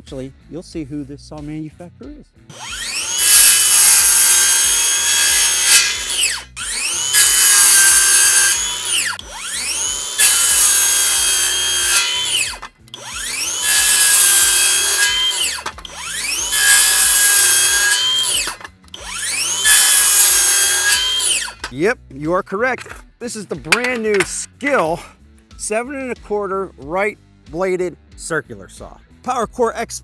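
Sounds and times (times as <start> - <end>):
circular saw cutting board: 2.5 - 21.8, 23.6 - 25.1.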